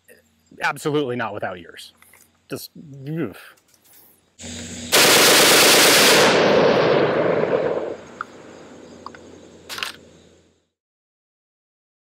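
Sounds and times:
machine gun full-auto burst: 4.9s - 8.0s.

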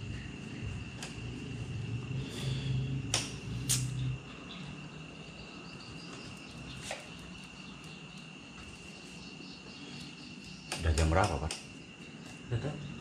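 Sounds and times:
low hum: 0.0s - 9.2s
night insects trilling: 0.0s - 13.0s
sharp clicks: 3.1s - 3.9s, 10.6s - 11.7s.

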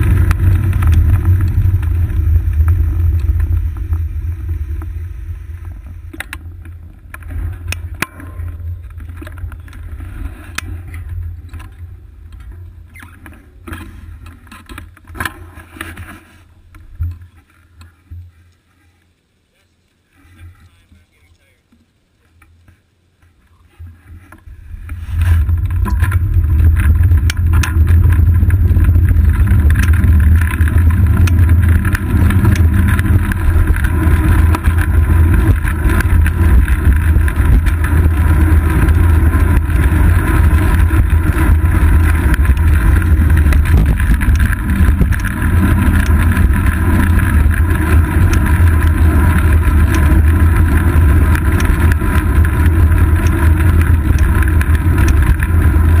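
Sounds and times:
wind buffeting: 0.0s - 13.0s, 24.4s - 56.0s
road vibration rumble: 0.0s - 18.7s, 23.8s - 56.0s.

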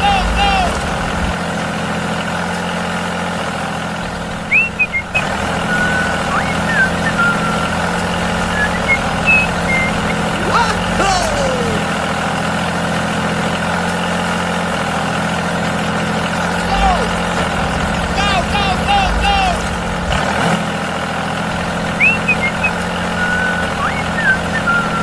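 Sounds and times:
tractor engine drone: 0.0s - 25.0s.

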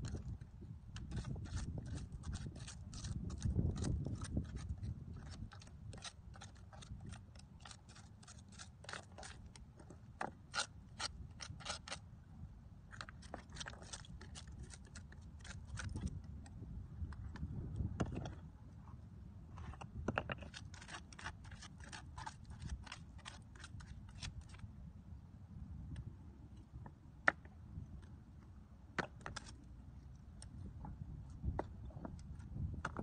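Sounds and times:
wind rumbling on microphone: 0.0s - 9.9s, 11.0s - 28.4s, 29.0s - 33.0s
shells and gravel clicking and scraping: 0.0s - 12.0s, 12.9s - 18.4s, 19.6s - 24.6s, 29.0s - 30.6s.

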